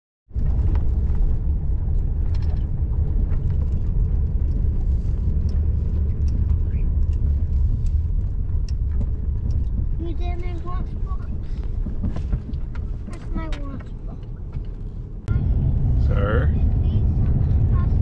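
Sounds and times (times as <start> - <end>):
vehicle engine and road rumble: 0.3 - 18.0
light clicks and ticks: 2.2 - 14.9.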